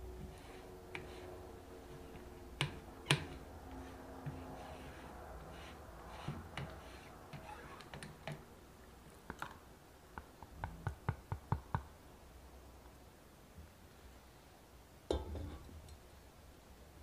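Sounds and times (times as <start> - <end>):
spatula scraping pot: 0.0 - 8.1.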